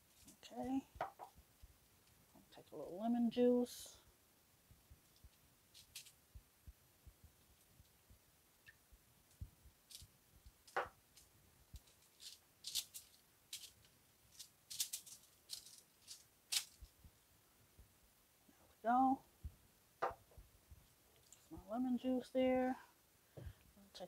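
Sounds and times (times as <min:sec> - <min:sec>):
aluminum foil crinkling: 0:05.0 - 0:06.2, 0:09.8 - 0:17.0.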